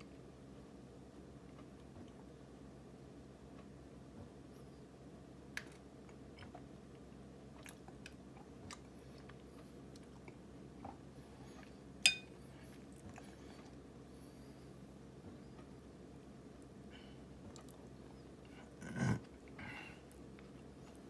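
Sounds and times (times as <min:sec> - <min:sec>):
wet chewing and lip-smacking: 0:07.6 - 0:11.0, 0:17.5 - 0:18.0
metal spoon clinking ceramic bowl: 0:12.0 - 0:12.3.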